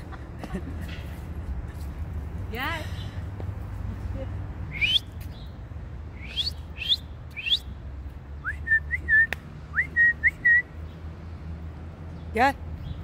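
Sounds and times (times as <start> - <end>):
person whistling: 4.7 - 5.1, 6.2 - 7.7, 8.4 - 10.7.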